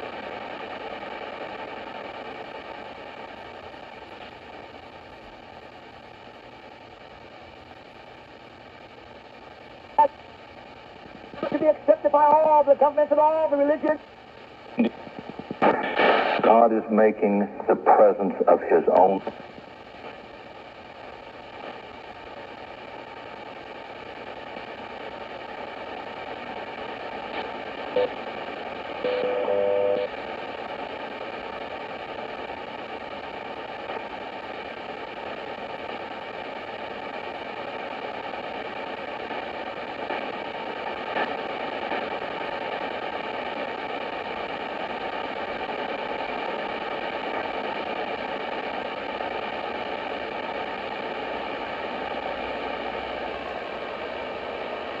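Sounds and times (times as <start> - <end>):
radio static hiss: 0.0 - 55.0
radio tone: 11.2 - 20.1, 24.2 - 31.4.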